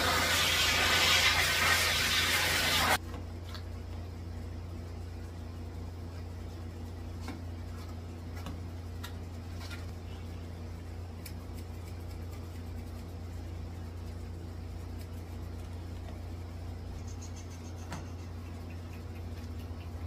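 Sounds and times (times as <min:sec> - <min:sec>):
steady low hum: 0:03.0 - 0:20.0.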